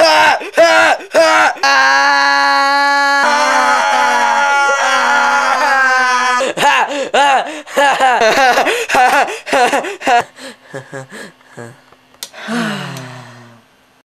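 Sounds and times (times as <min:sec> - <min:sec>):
boy laughing: 0:04.7 - 0:11.8.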